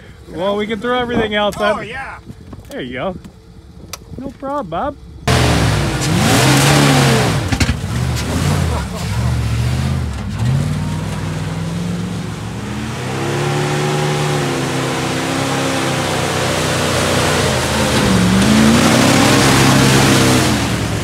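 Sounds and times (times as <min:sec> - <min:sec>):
truck engine revving hard: 0:05.2 - 0:21.0.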